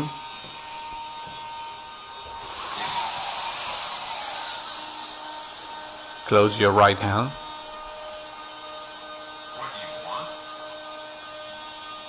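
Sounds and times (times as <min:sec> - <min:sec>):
servo motors whirring: 0:02.2 - 0:05.8.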